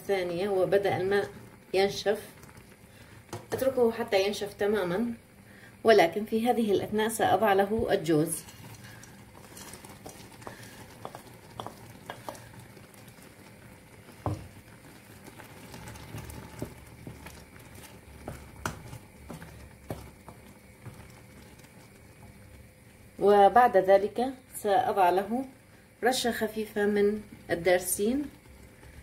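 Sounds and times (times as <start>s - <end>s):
syrup bubbling and sizzling: 0.0s - 29.0s
wooden spoon scraping a pot: 8.1s - 13.4s, 14.0s - 22.4s.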